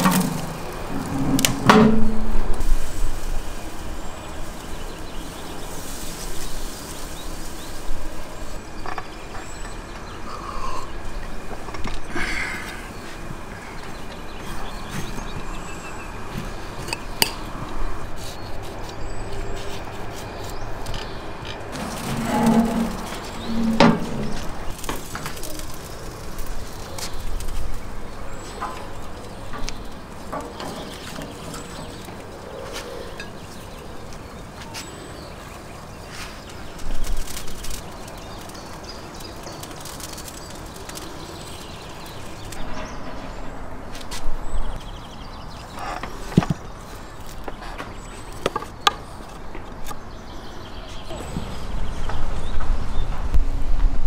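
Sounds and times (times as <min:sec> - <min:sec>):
bird calling: 0:03.7 - 0:16.3, 0:28.1 - 0:42.9.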